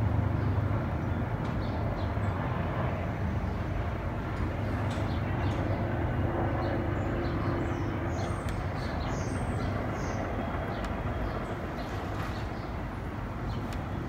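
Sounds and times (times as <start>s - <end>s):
distant jet engine rumble: 0.0s - 14.0s
small birds chirping: 4.6s - 14.0s.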